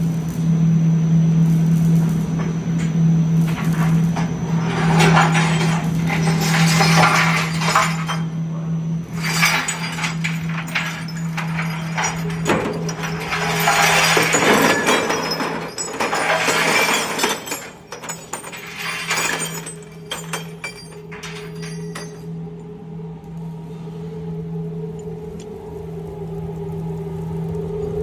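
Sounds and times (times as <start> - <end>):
metal parts tumbling in drum: 3.5 - 8.4, 9.1 - 22.3
metal parts clinking into tray: 4.7 - 8.3, 9.1 - 22.3.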